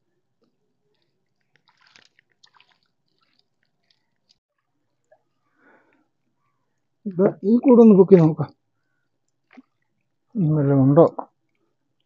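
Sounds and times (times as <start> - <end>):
wet squelches of fish: 0.4 - 7.0, 8.6 - 10.3
small splashes in water: 1.3 - 4.4.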